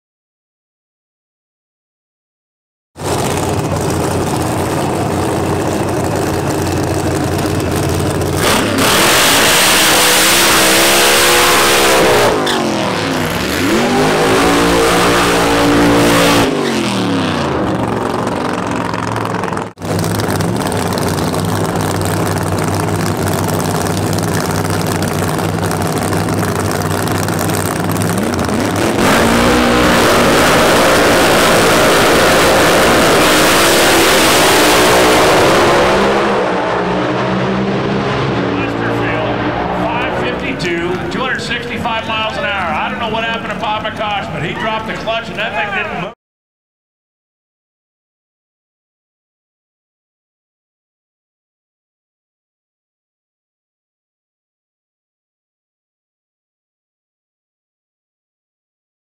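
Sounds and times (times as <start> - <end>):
loud race car engines revving: 3.0 - 46.2
tyre noise of burnout: 3.0 - 46.2.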